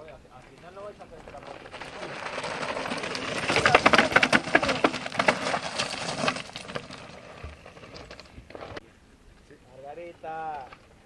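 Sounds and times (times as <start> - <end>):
bike tyres crunching over gravel: 0.3 - 8.8.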